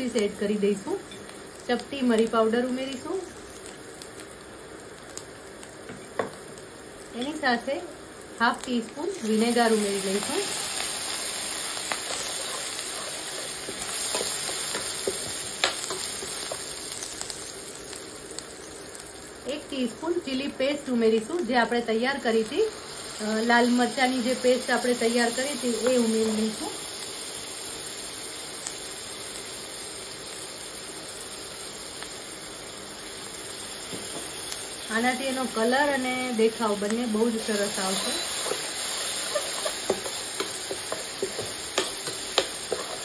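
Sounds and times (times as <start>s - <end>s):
vegetables sizzling in hot oil: 0.0s - 43.0s
spatula scraping pan: 37.4s - 43.0s.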